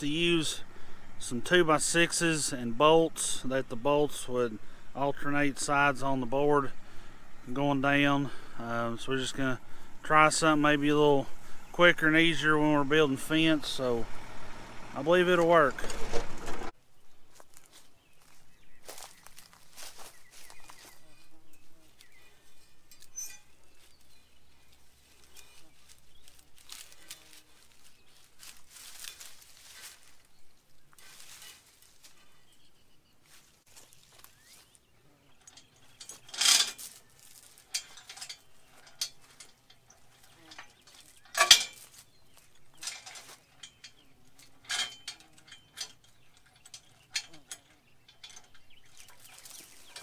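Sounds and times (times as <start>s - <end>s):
metallic clinks of wire fence: 22.5s - 24.0s, 35.3s - 50.0s
sharp metal clanks: 22.6s - 23.6s, 35.4s - 50.0s.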